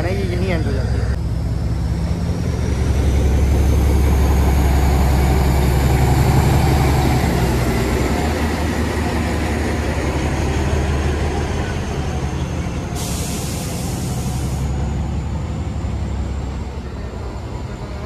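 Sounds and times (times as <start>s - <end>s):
diesel locomotive idling: 0.0s - 18.0s.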